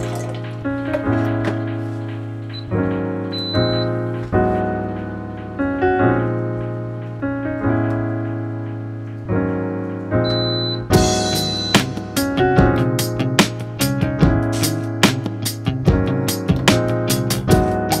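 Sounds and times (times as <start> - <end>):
electric piano chords: 0.0 - 18.0
short high beep: 10.3 - 11.9.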